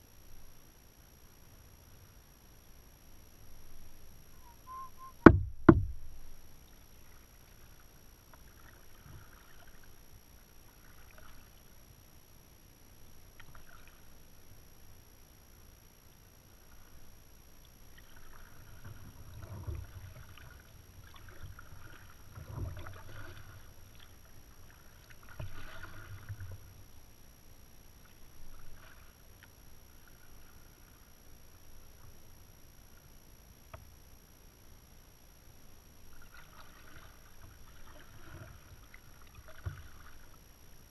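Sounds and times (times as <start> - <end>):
paddle splashing in water: 4.4 - 10.0, 10.6 - 11.6, 13.4 - 14.1, 17.9 - 26.8, 28.0 - 31.1, 36.1 - 40.4.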